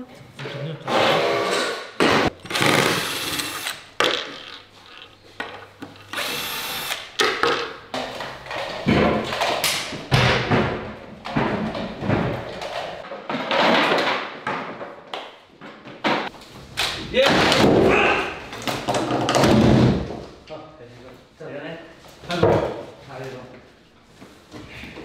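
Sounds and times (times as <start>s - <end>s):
cordless drill driving screws: 2.4s - 3.8s, 6.1s - 7.2s.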